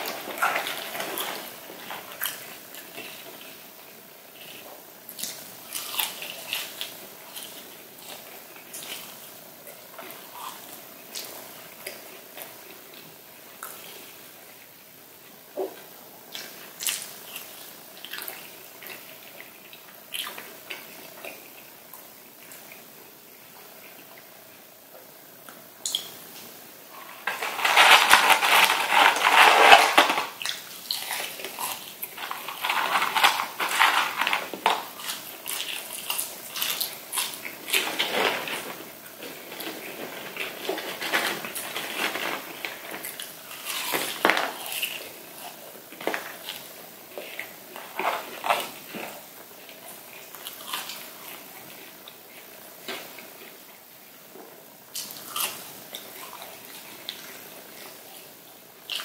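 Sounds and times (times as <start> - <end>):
crispy food crackling and rustling: 0.0 - 24.8, 25.5 - 59.0.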